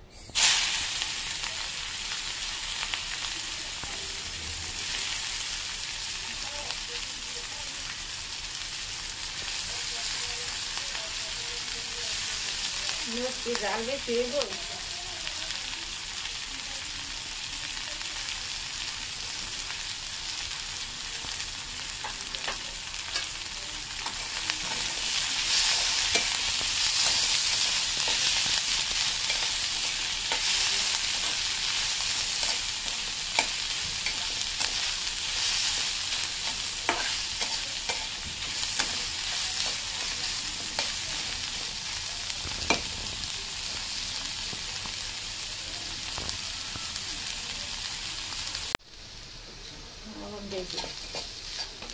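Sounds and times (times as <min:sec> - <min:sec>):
onions sizzling in hot oil: 0:00.2 - 0:51.9
spatula scraping pan: 0:24.0 - 0:41.3, 0:50.6 - 0:51.9.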